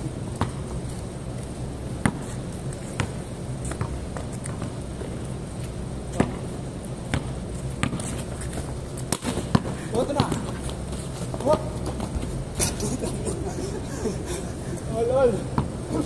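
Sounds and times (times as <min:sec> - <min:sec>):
low background hum: 0:00.0 - 0:16.0
basketball bouncing on concrete: 0:00.3 - 0:00.9, 0:02.0 - 0:05.1, 0:06.1 - 0:12.4, 0:15.5 - 0:15.8.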